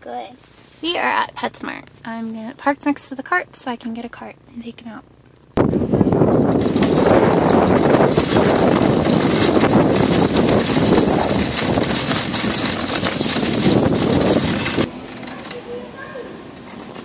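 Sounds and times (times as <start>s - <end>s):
shopping cart rattling over asphalt: 5.6s - 17.0s.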